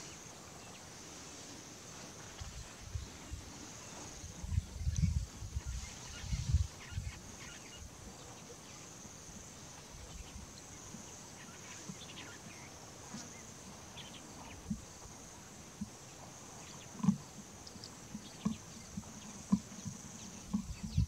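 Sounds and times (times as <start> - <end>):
high-pitched insect chorus: 0.0 - 21.0
faint low knocks: 16.9 - 21.0.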